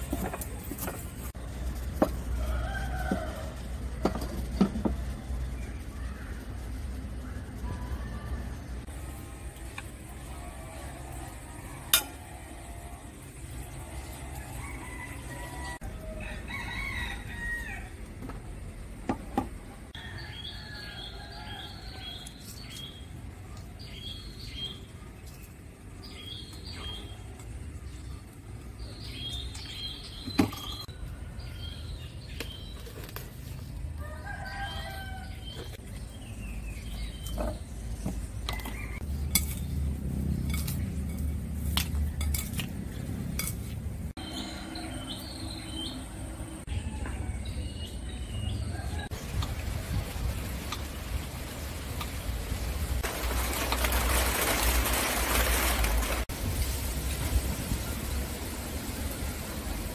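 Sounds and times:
rooster crowing: 2.3s - 3.6s, 14.1s - 18.1s, 34.0s - 35.6s.

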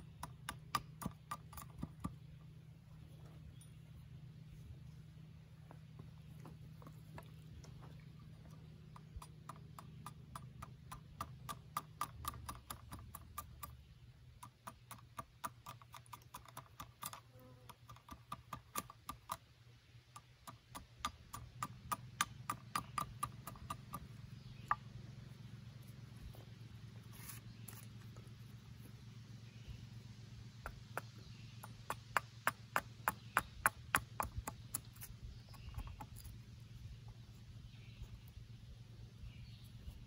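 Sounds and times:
carving tool knocking into wood: 30.6s - 34.9s.

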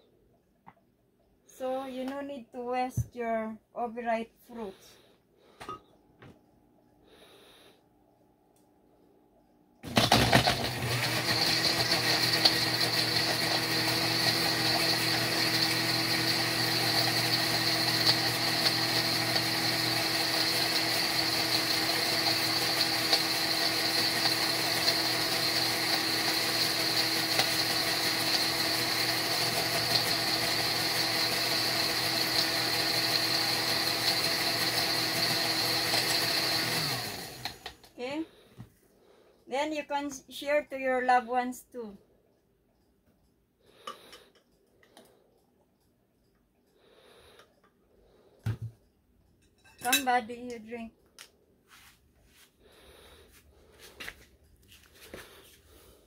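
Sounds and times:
blender running: 9.8s - 38.3s.

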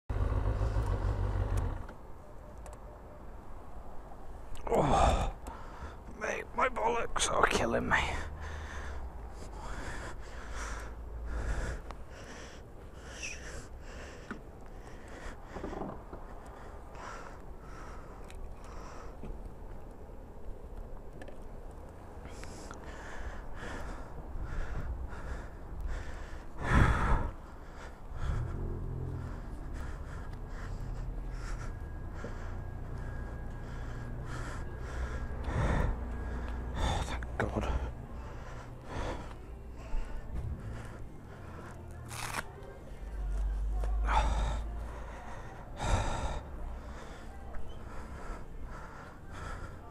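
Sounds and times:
person breathing heavily: 4.5s - 20.4s, 22.1s - 49.9s
low hum: 8.3s - 49.7s
low rumble: 24.2s - 41.9s.

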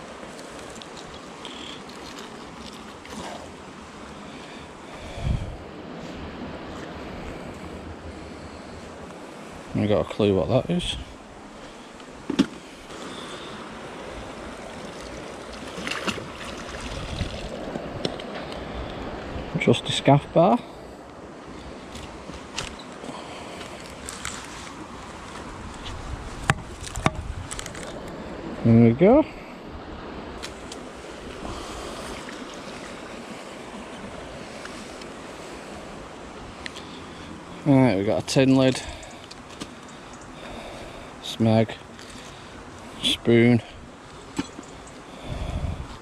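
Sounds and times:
flowing water rushing: 0.0s - 25.9s, 28.0s - 45.4s
wind buffeting microphone: 5.0s - 9.8s, 14.0s - 20.0s, 24.8s - 28.6s, 45.2s - 46.0s
faint clicks: 39.0s - 40.3s.

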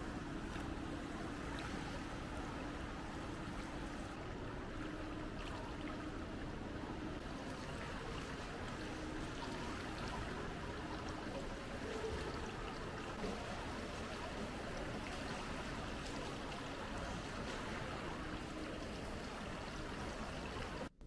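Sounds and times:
pool water splashing: 0.0s - 20.9s.

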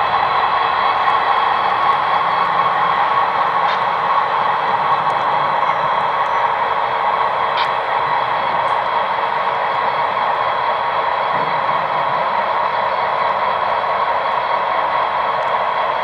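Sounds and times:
model locomotives running: 0.0s - 16.0s.

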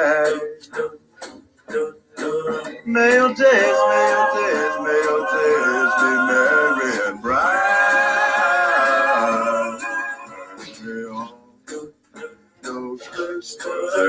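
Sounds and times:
boys singing a cappella: 0.0s - 14.0s.

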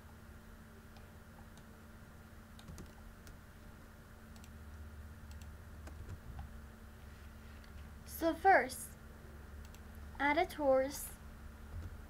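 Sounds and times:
steady low hum: 0.0s - 12.0s
computer keys and mouse clicks: 2.5s - 3.4s, 4.3s - 6.5s, 9.6s - 9.9s.

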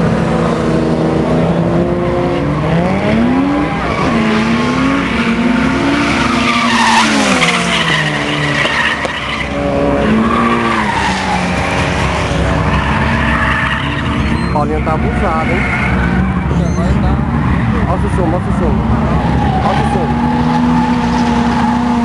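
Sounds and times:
car engines revving: 0.0s - 22.0s
tyres squealing: 2.6s - 18.1s.

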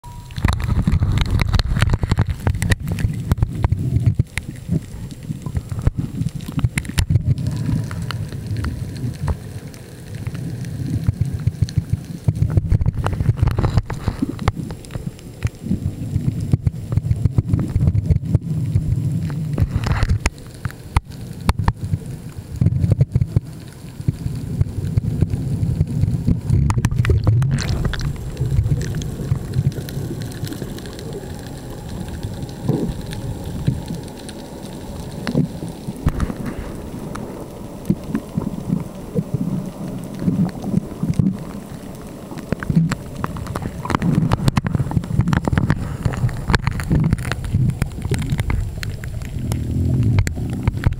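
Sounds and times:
muffled underwater rumbling: 0.0s - 50.9s.

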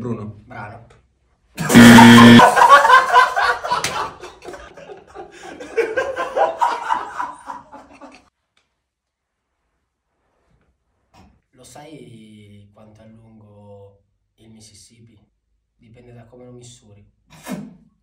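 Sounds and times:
audience laughter: 1.6s - 8.2s
loud steady tone: 1.7s - 2.5s.

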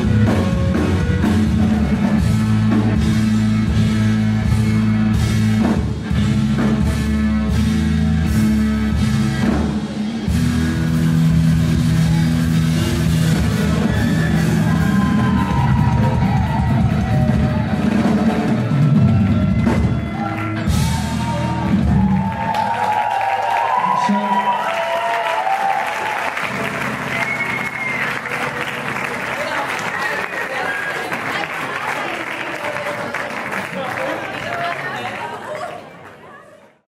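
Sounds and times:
bass guitar: 0.0s - 22.8s, 26.4s - 29.6s
drum kit: 0.0s - 23.8s.

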